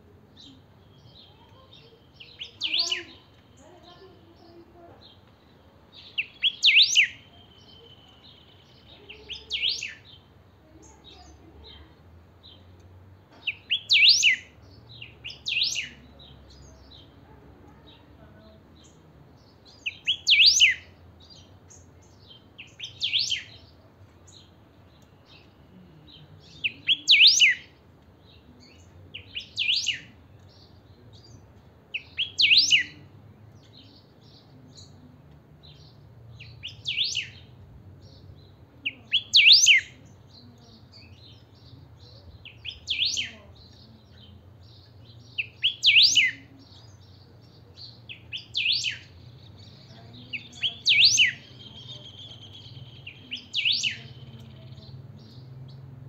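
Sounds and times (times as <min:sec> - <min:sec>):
bird singing whistled phrases: 0:02.1 - 0:03.2, 0:06.0 - 0:10.1, 0:13.5 - 0:14.5, 0:15.2 - 0:16.0, 0:19.8 - 0:20.9, 0:22.6 - 0:23.6, 0:26.4 - 0:27.7, 0:29.2 - 0:30.1, 0:32.0 - 0:33.0, 0:36.4 - 0:37.4, 0:39.0 - 0:40.0, 0:42.4 - 0:43.4, 0:45.4 - 0:46.8, 0:47.8 - 0:49.7, 0:50.3 - 0:54.3.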